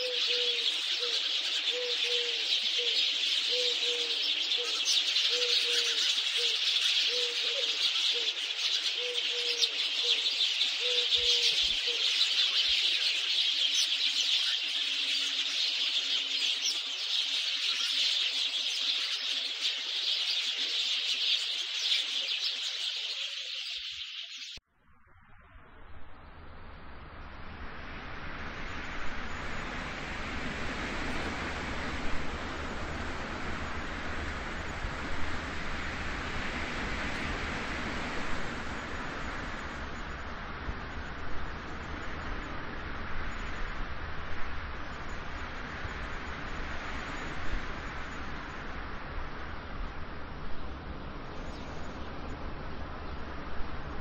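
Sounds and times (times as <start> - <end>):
birds chirping: 0.0 - 24.6
faint hiss: 0.0 - 54.0.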